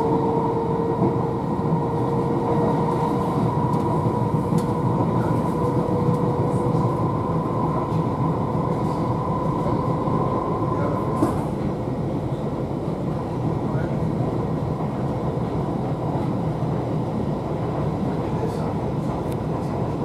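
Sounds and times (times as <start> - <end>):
train wheels rumbling on track: 0.0 - 20.0
train whine: 0.0 - 20.0.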